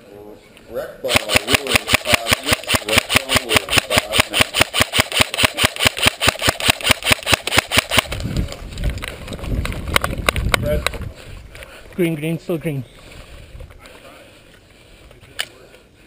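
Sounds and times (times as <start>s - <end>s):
airsoft rifle firing: 1.1s - 8.2s.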